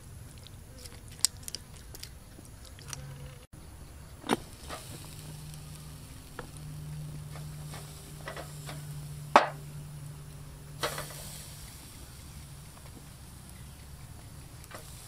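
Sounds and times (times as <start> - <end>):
low steady hum: 0.0 - 15.0
brief hiss: 4.2 - 6.3, 10.8 - 13.0
metal tongs clicking on grill: 10.8 - 11.9.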